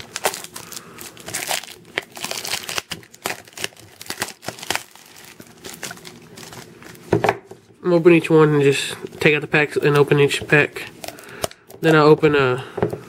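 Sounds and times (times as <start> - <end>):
plastic packaging crinkling: 0.0 - 7.1.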